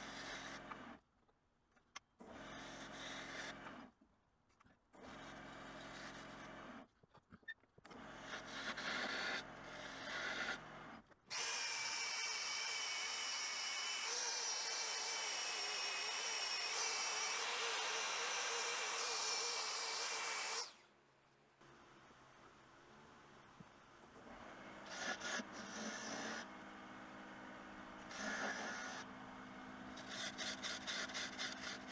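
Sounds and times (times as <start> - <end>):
drill whining: 11.3 - 20.8.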